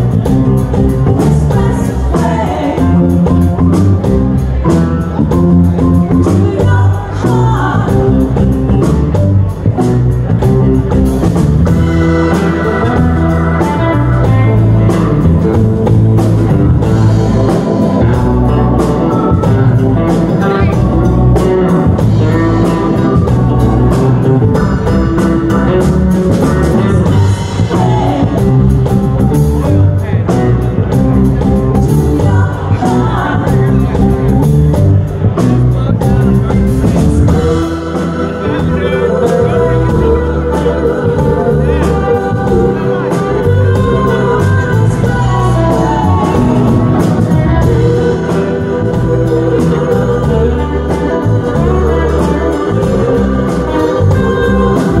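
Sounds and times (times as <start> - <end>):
bass: 0.0 - 55.0
drums: 0.0 - 55.0
electric guitars: 0.0 - 55.0
women singing: 1.2 - 3.6, 6.1 - 8.5, 11.6 - 24.4, 26.8 - 29.0, 31.8 - 34.3, 37.2 - 55.0.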